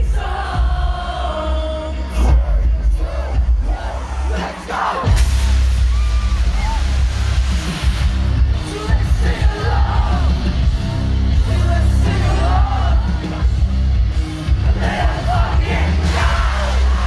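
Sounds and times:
live heavy rock band: 0.0 - 17.0
person singing and yelling: 8.6 - 10.6, 11.4 - 13.5.

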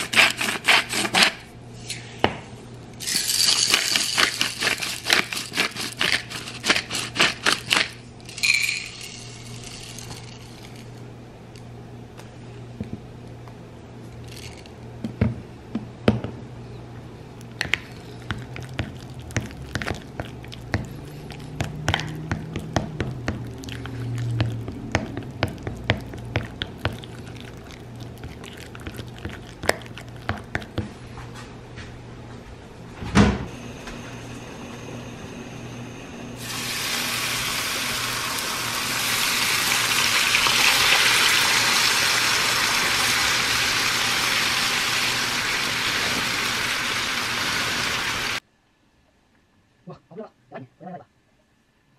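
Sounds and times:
spoon mashing avocado in glass dish: 17.6 - 31.0
bacon sizzling in a frying pan: 36.4 - 48.4.

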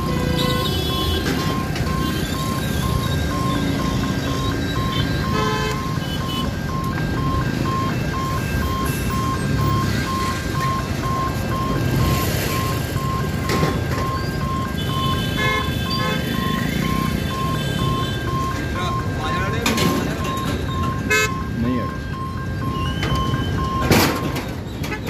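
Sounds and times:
road traffic engines: 0.0 - 25.0
rapid electronic warning beeps: 1.0 - 24.6
vehicle horn toot: 14.8 - 16.4.

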